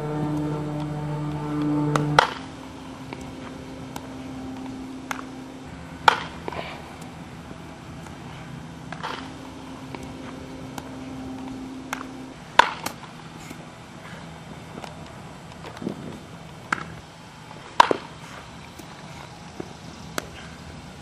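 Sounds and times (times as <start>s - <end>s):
steady low hum: 0.0s - 21.0s
bat hitting baseball: 1.5s - 2.5s, 6.0s - 10.9s, 11.9s - 13.1s, 17.7s - 18.2s.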